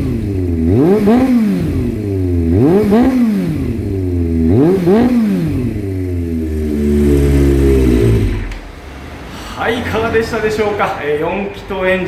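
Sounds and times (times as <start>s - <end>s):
motorcycle engine idling and revving: 0.0s - 9.0s.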